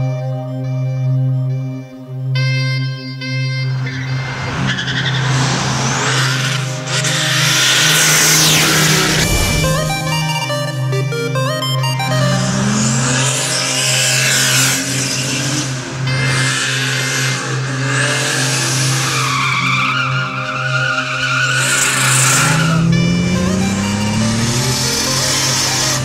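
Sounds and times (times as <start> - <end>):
car engine revving: 3.6 - 26.0
tyres squealing and skidding: 3.7 - 10.6, 12.2 - 26.0.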